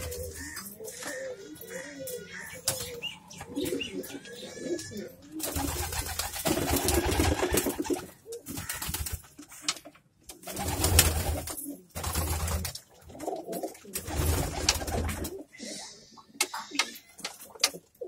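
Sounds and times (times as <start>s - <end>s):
pigeons cooing: 0.0s - 8.7s, 10.6s - 18.0s.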